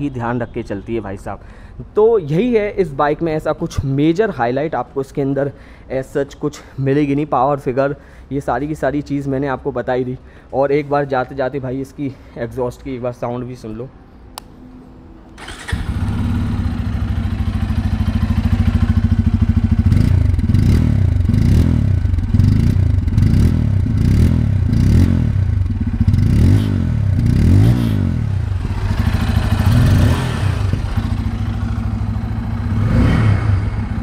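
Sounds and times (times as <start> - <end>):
motorcycle engine idling and revving: 15.4 - 34.0
motorcycle engine starting: 15.4 - 34.0.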